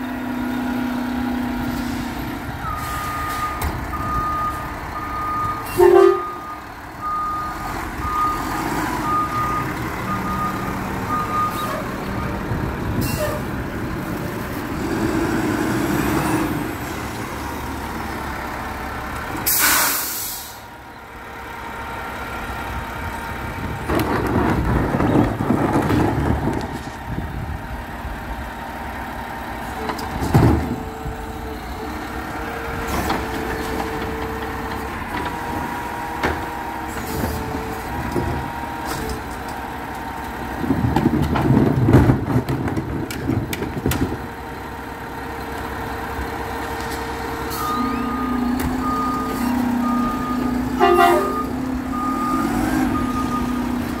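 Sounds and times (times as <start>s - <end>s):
garbage truck running: 0.0s - 54.0s
air brake hiss: 19.4s - 20.6s
reversing alarm beeping: 47.5s - 54.0s.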